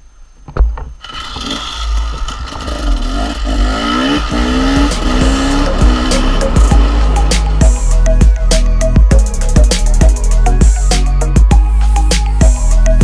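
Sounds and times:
dirt bike engine revving: 1.0 - 8.0.

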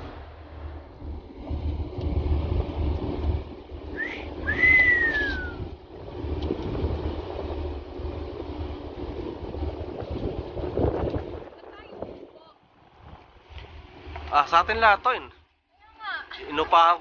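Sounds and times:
wind on microphone: 0.0 - 14.2
boat engine rumble: 0.0 - 17.0
person wolf whistling: 3.9 - 5.6.

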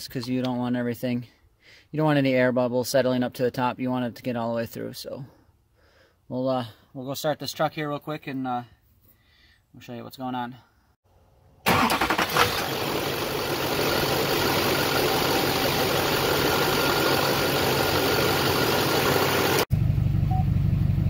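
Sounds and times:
diesel engine cranking and idling: 11.6 - 21.0.

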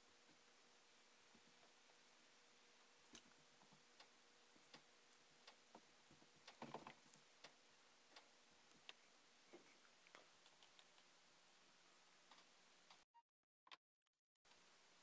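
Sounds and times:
small clicks and taps: 8.2 - 11.1.

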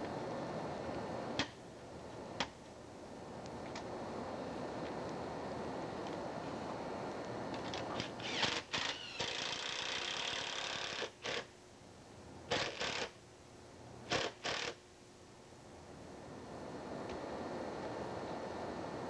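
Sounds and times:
cordless drill bursts: 8.0 - 11.5, 12.5 - 13.2, 14.1 - 14.8.

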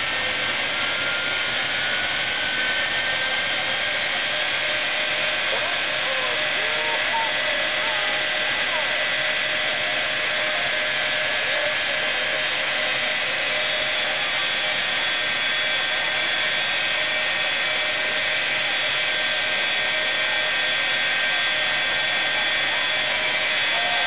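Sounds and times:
jet turbine engine running: 0.0 - 24.0.

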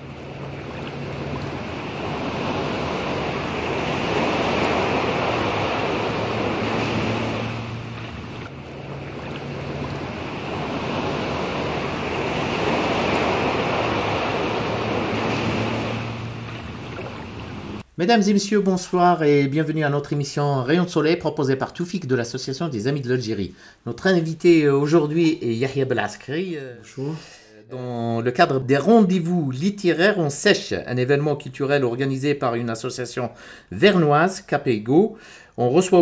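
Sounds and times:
rushing surf-like noise: 0.0 - 17.8.

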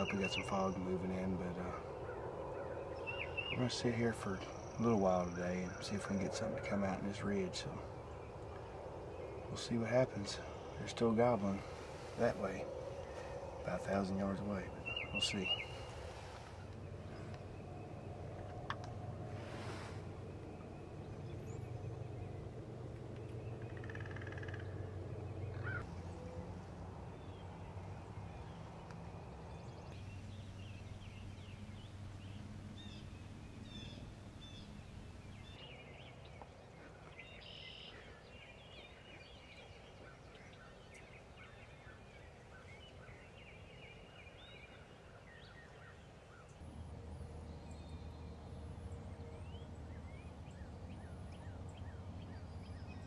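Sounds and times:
low wind rumble: 0.0 - 53.0
songbirds chirping and singing: 0.0 - 53.0
distant turkey gobbling: 23.6 - 24.9.

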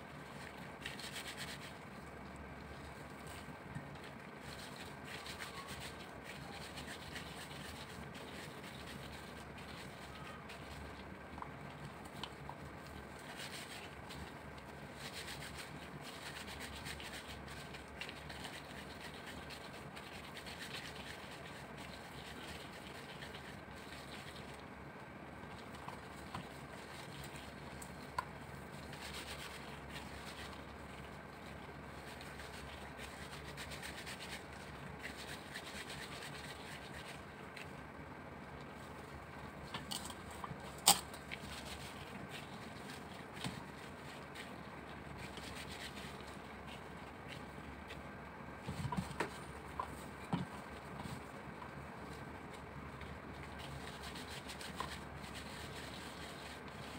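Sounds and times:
faint low hum: 0.0 - 56.9
gloves rubbing against meat: 0.0 - 56.9
quick scratchy rustles: 2.7 - 11.2, 39.6 - 56.9.

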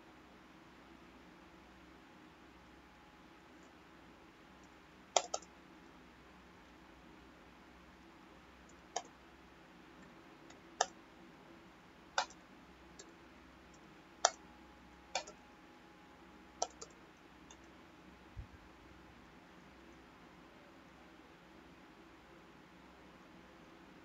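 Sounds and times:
faint room hiss: 0.0 - 24.0
mouse and keyboard clicks: 4.6 - 5.5, 8.7 - 9.2, 10.5 - 11.0, 12.2 - 12.4, 14.2 - 14.4, 15.1 - 15.4, 16.6 - 17.7.

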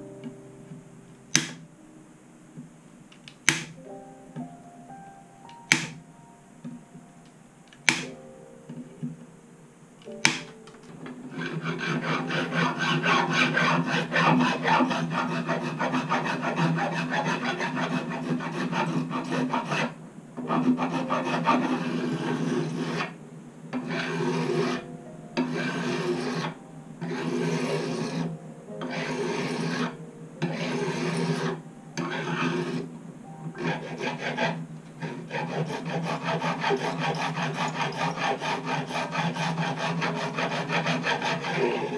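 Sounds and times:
file rasping on guitar frets: 11.3 - 19.9, 20.5 - 23.2, 23.8 - 24.8, 25.4 - 32.8, 33.6 - 41.9.

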